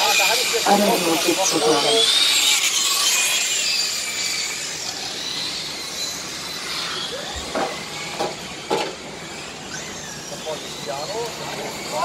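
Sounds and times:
model race car motors whining: 0.0 - 12.0.

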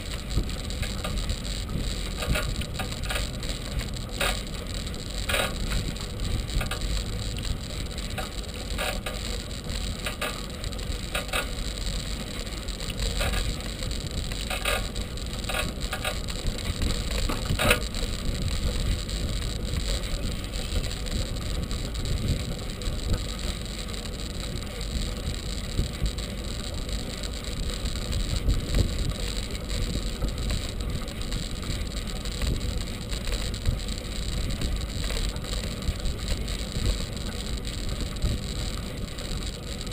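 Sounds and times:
bicycle rattles and clicks: 0.0 - 39.9
bicycle tyres rumbling on path: 0.0 - 39.9
wind on microphone: 15.5 - 23.4, 27.9 - 31.8.

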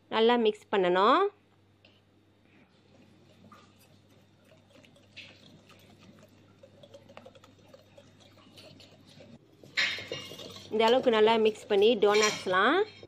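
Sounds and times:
low steady hum: 0.0 - 13.0
spoon stirring wet glaze: 2.7 - 13.0.

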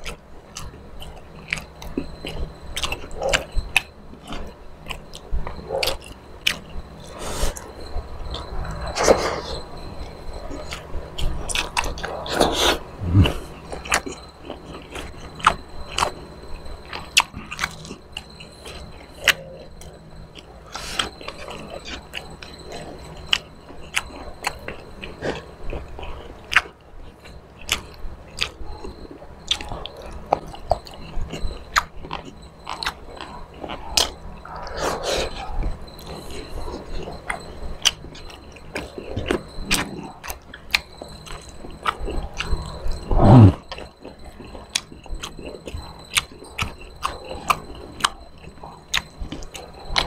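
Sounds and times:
person chewing and smacking: 0.0 - 7.7, 10.5 - 16.2, 16.8 - 50.0.

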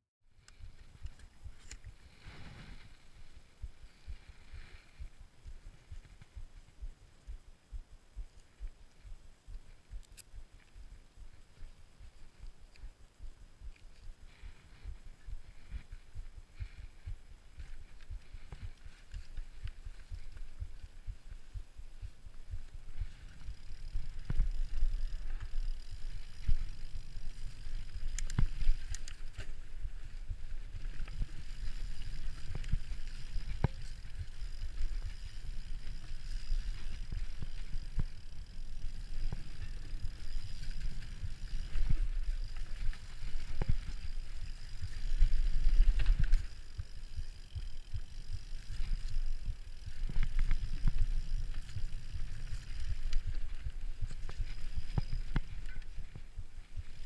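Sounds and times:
bike tyres rumbling on dirt: 14.2 - 57.0.

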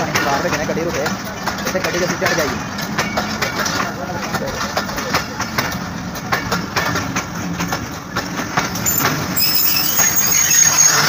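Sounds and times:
train wheels clicking over rail joints: 0.0 - 11.0
high brake squeal: 8.8 - 11.0.

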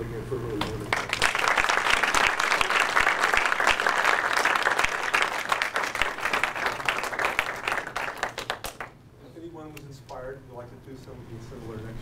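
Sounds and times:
audience applauding: 0.9 - 8.9.

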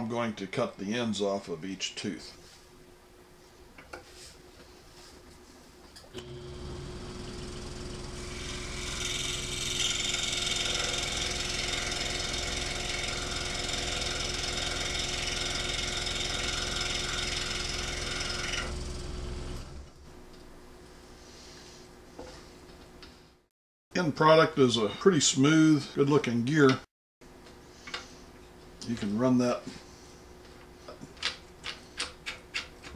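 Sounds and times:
saw cutting plastic: 6.2 - 20.0
scroll saw motor hum: 6.2 - 20.0.

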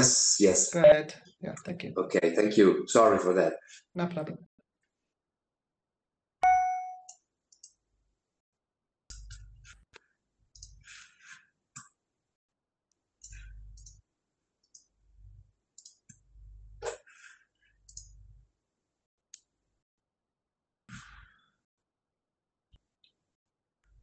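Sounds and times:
short ringing tone: 6.4 - 7.1
computer keys and mouse clicking: 6.4 - 7.8, 10.6 - 10.9, 13.2 - 14.0, 15.8 - 16.3, 17.8 - 18.2.

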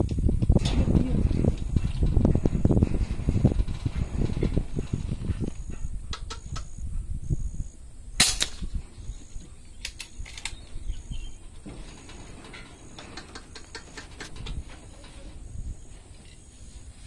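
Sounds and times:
wind rumble: 0.0 - 17.0
air rifle shot: 8.2 - 8.8
handling noise: 8.4 - 17.0.

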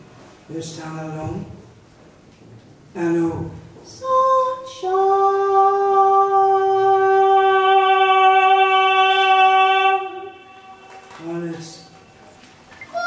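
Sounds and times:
woman singing unaccompanied: 3.9 - 10.9.

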